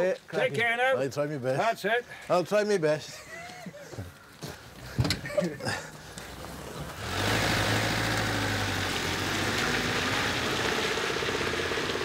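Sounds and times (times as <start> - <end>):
van engine running: 6.3 - 12.0.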